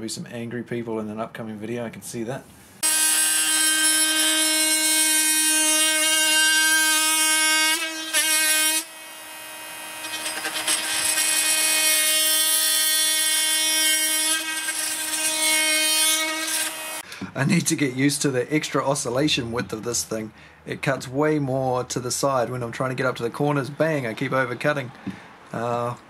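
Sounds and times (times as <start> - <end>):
blade cutting wood: 2.8 - 17.0
oscillating multi-tool whine: 2.8 - 17.0.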